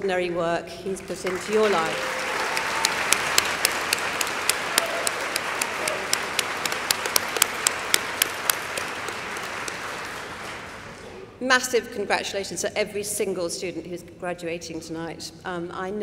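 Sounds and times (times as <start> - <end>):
loud hand claps near microphone: 1.0 - 11.0
audience applauding: 1.1 - 11.0.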